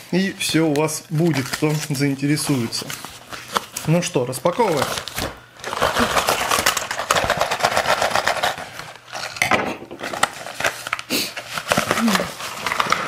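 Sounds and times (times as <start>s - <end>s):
plastic mailer crinkling: 0.2s - 9.4s, 10.0s - 13.0s.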